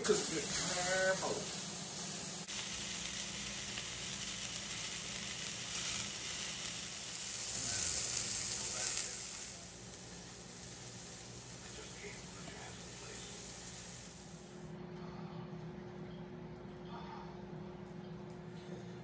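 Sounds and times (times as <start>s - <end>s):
steaks sizzling in a skillet: 0.0s - 14.6s.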